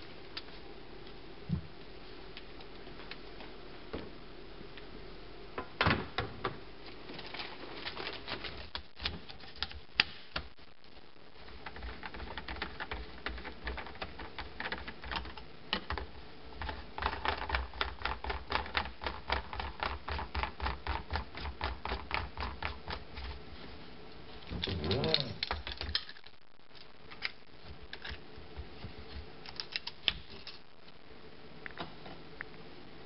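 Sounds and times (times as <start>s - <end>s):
plastic crinkling: 6.9s - 10.4s.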